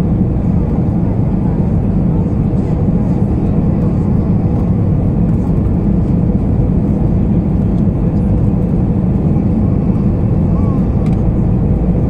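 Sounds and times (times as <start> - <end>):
airplane cabin roar: 0.0 - 12.0.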